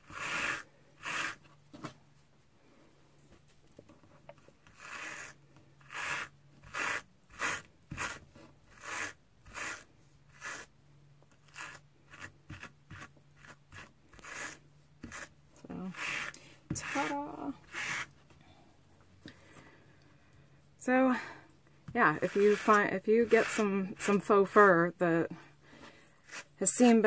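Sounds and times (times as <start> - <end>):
wire brush scratching through fur: 11.5 - 18.1, 22.0 - 24.7.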